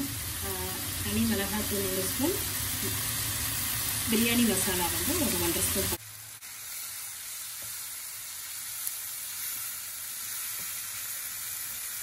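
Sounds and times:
masala sizzling in oil: 0.0s - 12.0s.

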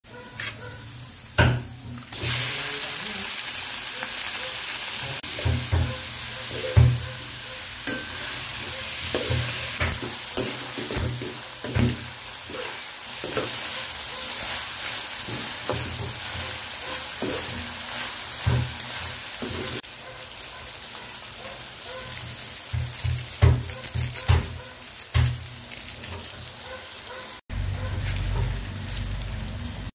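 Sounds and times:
meat sizzling in a pan: 0.8s - 27.4s
spatula scraping a pan: 7.8s - 19.8s.

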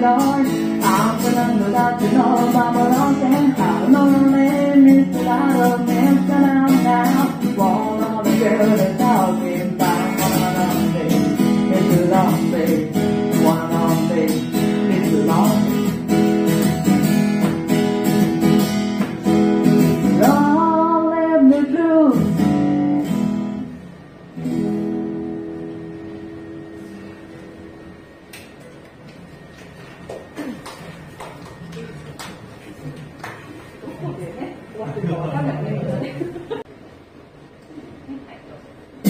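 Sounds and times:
acoustic guitar strumming: 0.0s - 28.6s.

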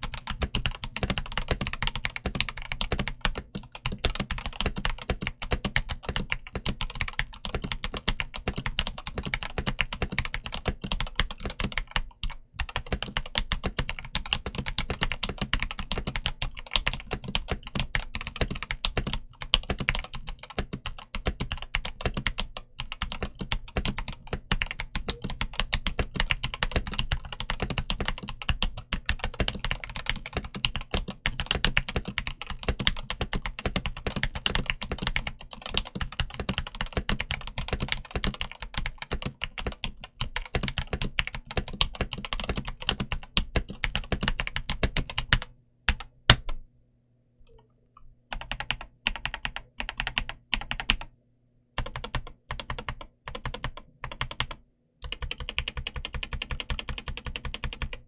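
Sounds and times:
mechanical keyboard typing: 0.0s - 46.6s, 48.3s - 51.1s, 51.8s - 58.0s.

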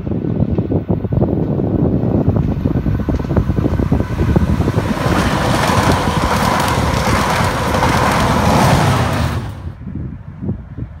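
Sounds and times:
diesel locomotive engine: 1.3s - 10.4s
train wheels rushing on rails: 1.4s - 9.8s.

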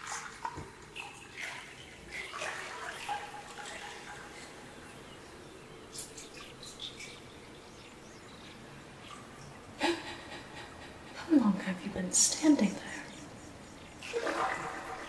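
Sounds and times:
water and wind hiss: 0.0s - 15.0s
water drips: 0.0s - 15.0s
faint bird chirps: 3.2s - 14.1s.

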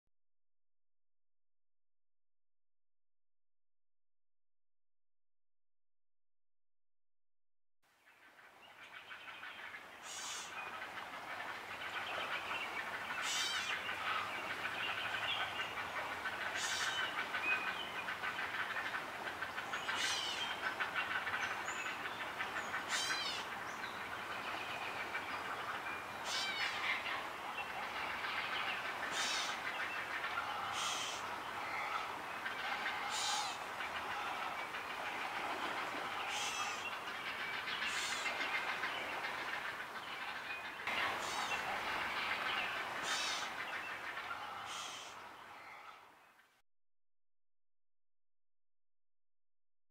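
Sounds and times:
short sharp bird calls: 10.0s - 10.6s, 13.2s - 14.3s, 28.2s - 35.3s, 36.0s - 38.8s, 40.9s - 46.1s.

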